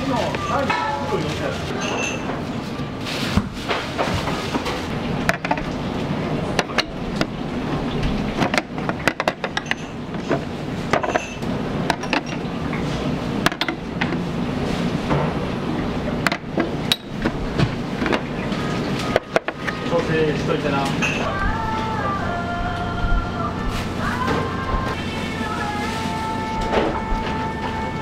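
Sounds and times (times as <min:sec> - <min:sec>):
utensils clanking against wok: 0:00.0 - 0:02.6, 0:08.1 - 0:14.2
burner and ventilation rush: 0:01.1 - 0:28.0.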